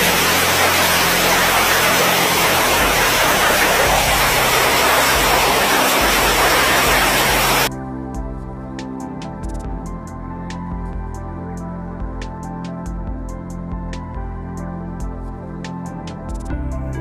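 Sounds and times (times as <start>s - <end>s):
hail and rain falling hard: 0.0s - 7.7s.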